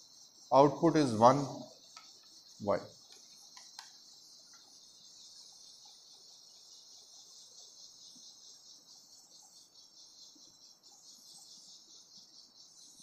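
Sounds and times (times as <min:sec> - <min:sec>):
high-pitched insect chirring: 0:00.0 - 0:13.0.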